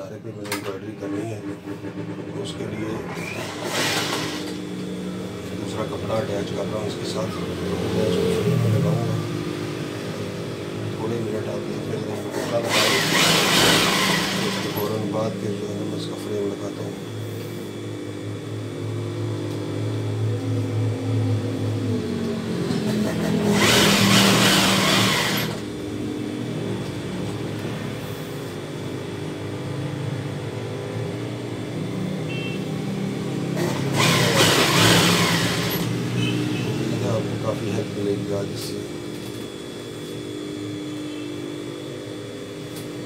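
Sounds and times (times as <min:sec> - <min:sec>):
steady hum: 0:00.0 - 0:43.0
sewing machine stitching: 0:01.6 - 0:04.6, 0:12.2 - 0:15.0, 0:22.9 - 0:25.6, 0:33.6 - 0:35.9.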